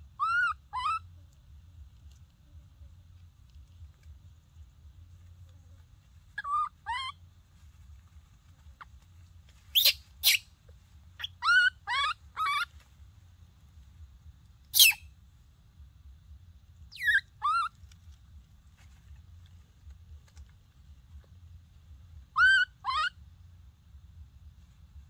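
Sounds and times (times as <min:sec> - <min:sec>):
baby monkey crying: 0:00.0 - 0:01.1, 0:06.4 - 0:07.2, 0:09.8 - 0:10.4, 0:11.2 - 0:12.7, 0:14.7 - 0:15.0, 0:16.9 - 0:17.7, 0:22.3 - 0:23.2.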